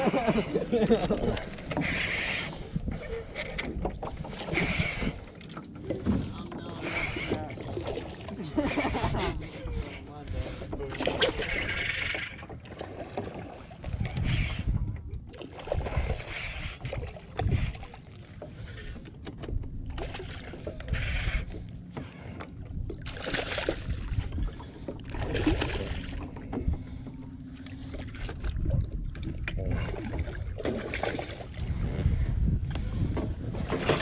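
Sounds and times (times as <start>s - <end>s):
wind buffeting microphone: 13.4s - 34.0s.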